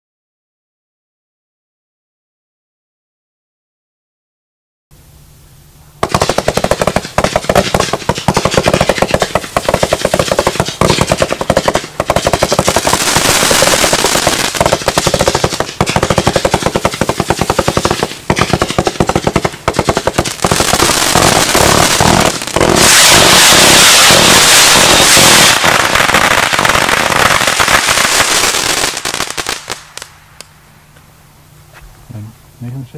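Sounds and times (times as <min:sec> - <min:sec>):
firework launch pops: 0:06.0 - 0:30.5
firework crackling: 0:06.0 - 0:30.6.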